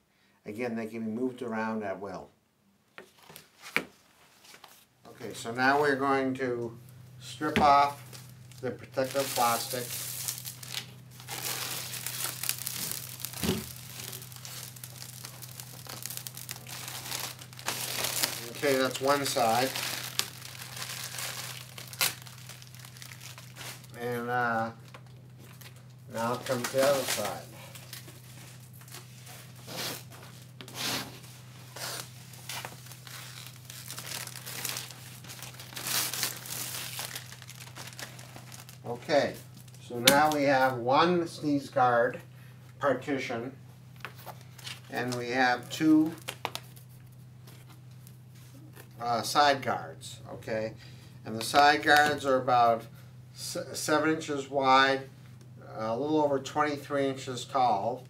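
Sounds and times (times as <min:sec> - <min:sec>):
plastic film crinkling and tearing: 0:07.8 - 0:24.2, 0:24.9 - 0:30.8, 0:31.6 - 0:40.4, 0:44.1 - 0:48.1.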